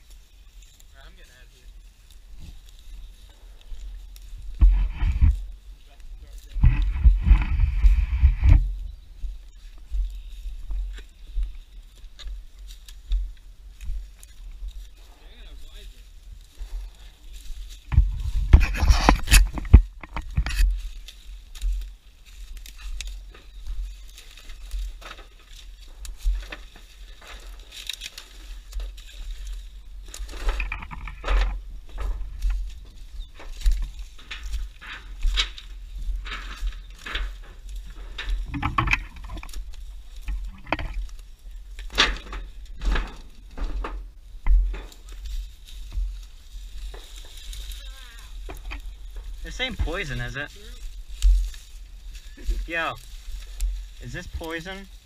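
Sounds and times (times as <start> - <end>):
branches scraping: 0.0 - 55.0
footsteps crunching through dry leaves: 0.0 - 55.0
low rumble: 1.5 - 11.4.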